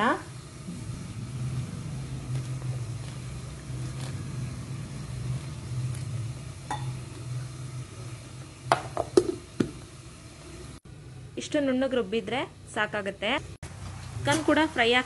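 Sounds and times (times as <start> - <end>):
low hum: 0.3 - 8.7.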